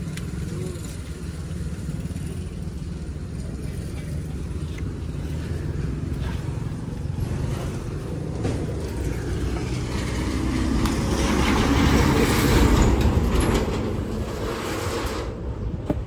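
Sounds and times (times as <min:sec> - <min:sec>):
engine rumbling: 0:00.0 - 0:16.0.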